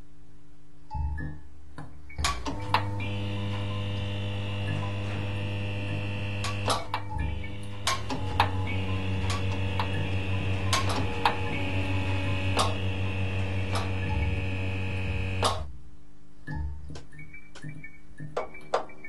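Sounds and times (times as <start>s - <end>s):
low hum: 2.6s - 15.6s.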